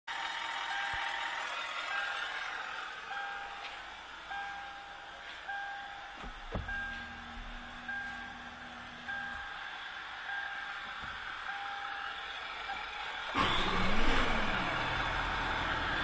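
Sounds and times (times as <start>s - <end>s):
car warning chime beeping: 0.7s - 1.3s, 1.9s - 9.6s, 10.2s - 12.9s
low steady hum: 1.9s - 12.9s.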